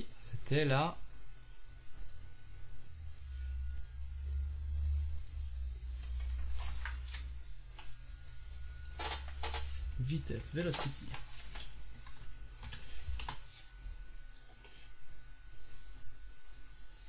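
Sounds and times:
low steady hum: 0.0s - 17.0s
computer mouse clicks: 3.1s - 5.4s, 8.2s - 9.6s, 14.3s - 14.6s.

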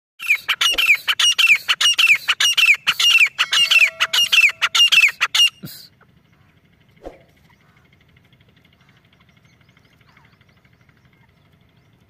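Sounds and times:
francolin calling: 0.2s - 6.7s.

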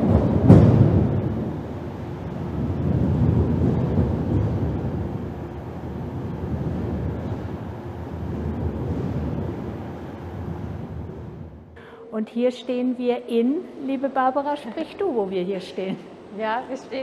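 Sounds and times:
deep steady rumble: 0.0s - 11.8s.

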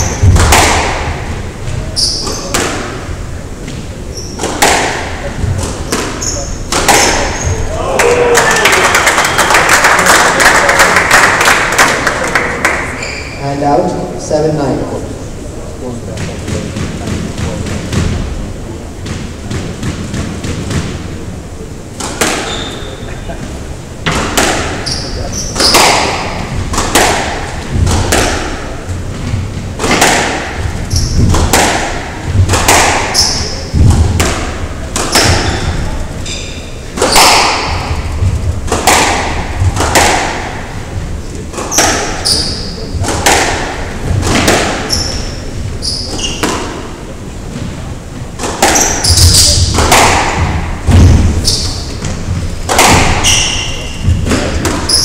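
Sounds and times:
shoes squeaking on wooden floor: 0.0s - 0.4s, 1.6s - 2.6s, 3.6s - 4.6s, 5.6s - 7.7s, 13.0s - 13.4s, 22.4s - 23.7s, 24.7s - 26.6s, 30.6s - 31.4s, 35.1s - 37.0s, 44.8s - 46.7s, 48.6s - 49.7s, 51.2s - 52.6s, 53.2s - 55.0s
squash ball hitting rackets: 0.0s - 7.8s, 16.1s - 18.4s, 19.0s - 21.2s, 22.0s - 23.0s, 24.0s - 55.0s.

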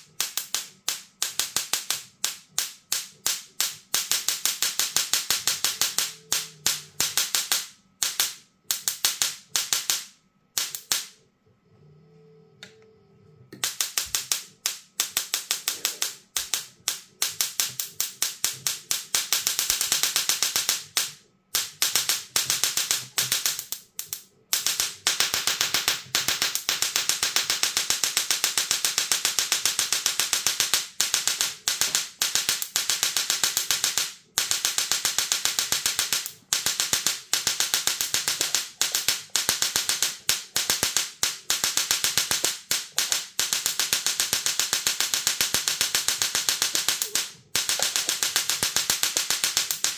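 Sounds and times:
tesla coil buzzing a tune: 0.2s - 11.2s.

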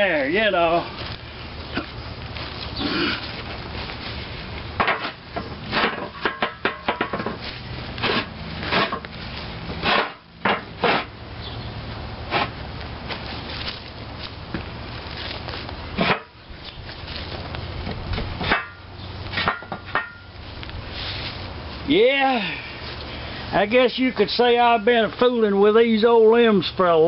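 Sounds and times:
heavy metal knocking and scraping: 4.8s - 7.4s.

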